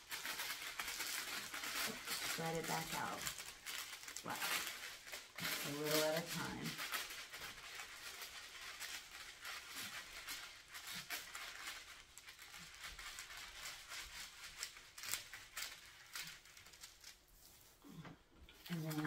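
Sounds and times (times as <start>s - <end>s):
plastic film crinkling: 0.0s - 19.0s.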